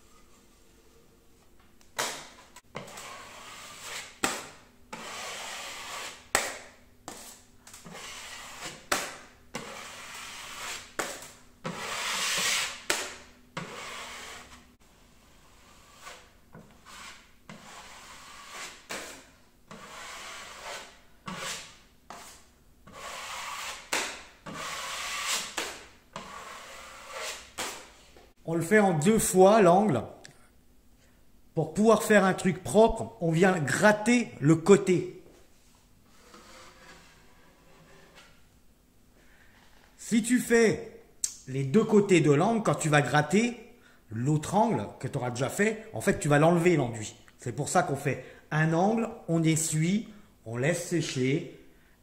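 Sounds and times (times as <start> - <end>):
taping knife scraping plasterboard: 2.0 - 28.0, 36.1 - 38.4.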